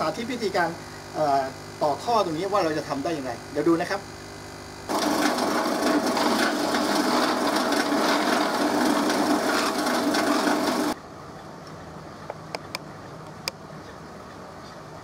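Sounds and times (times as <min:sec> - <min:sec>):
drill press motor hum: 0:04.6 - 0:11.0
drill bit cutting plastic: 0:04.9 - 0:11.0.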